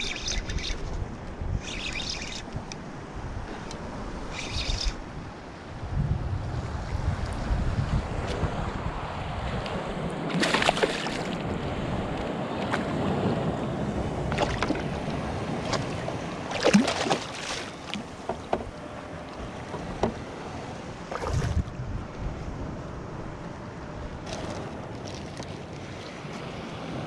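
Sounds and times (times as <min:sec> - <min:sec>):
wind on microphone: 0:00.0 - 0:18.8, 0:21.0 - 0:24.6
water sloshing and splashing: 0:10.3 - 0:11.6, 0:14.2 - 0:20.4, 0:21.0 - 0:21.8, 0:24.2 - 0:26.5.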